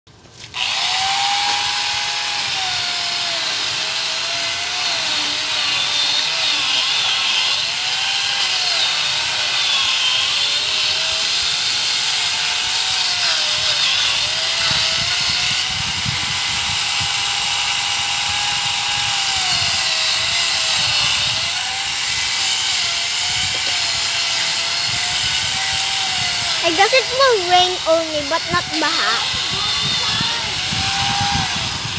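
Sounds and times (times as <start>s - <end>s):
grinder saw cutting wood: 0.2s - 31.9s.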